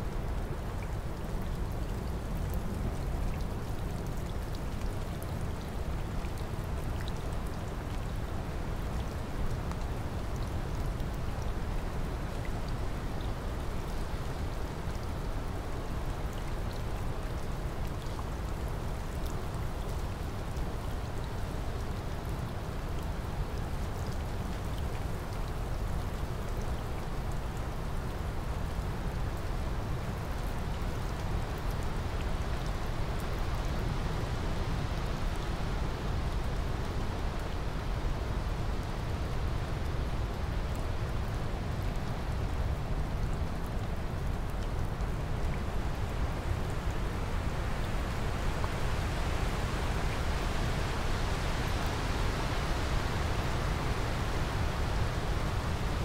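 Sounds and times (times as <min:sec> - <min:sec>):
steady rain hiss: 0:00.0 - 0:56.0.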